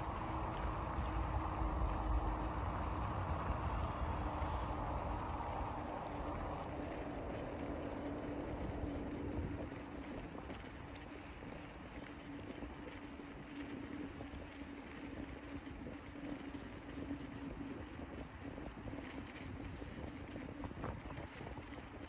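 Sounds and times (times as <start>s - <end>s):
constant low hum: 0.0s - 22.0s
town background rumble: 0.0s - 22.0s.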